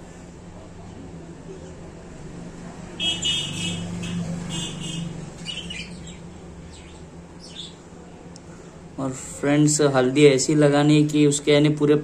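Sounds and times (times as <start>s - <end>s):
budgerigar chirping: 3.0s - 7.8s.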